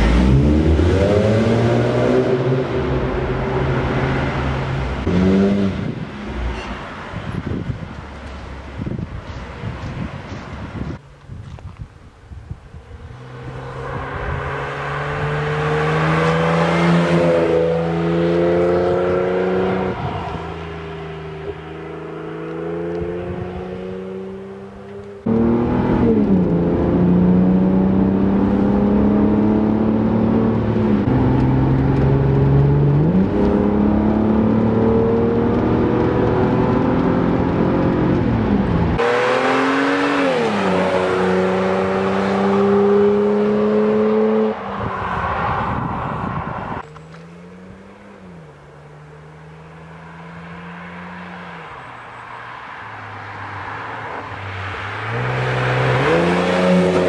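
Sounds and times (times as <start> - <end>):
car engine accelerating hard: 0.0 - 6.0, 13.0 - 44.9, 55.0 - 57.0.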